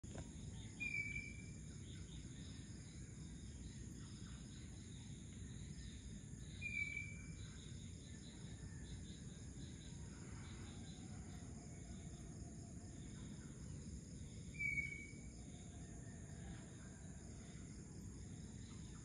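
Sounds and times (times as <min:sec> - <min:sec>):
insect trilling: 0:00.2 - 0:19.0
bird whistled calls: 0:00.8 - 0:01.4, 0:06.6 - 0:07.2, 0:14.6 - 0:15.2.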